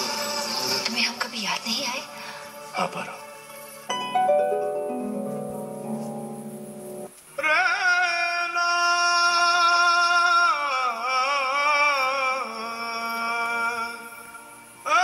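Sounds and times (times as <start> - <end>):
person singing with vibrato: 3.9 - 15.0.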